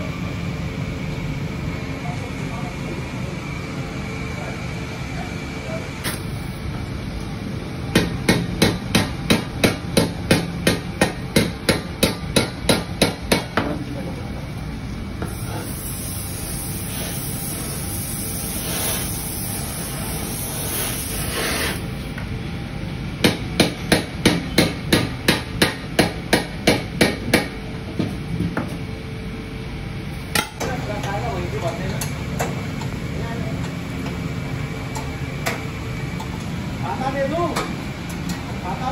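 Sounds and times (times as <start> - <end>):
steady hiss: 15.4 - 21.8.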